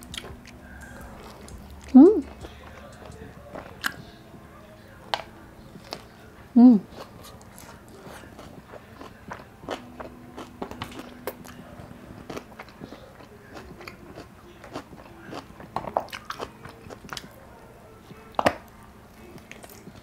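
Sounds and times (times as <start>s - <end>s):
wet chewing: 0.0s - 4.2s, 6.9s - 17.4s.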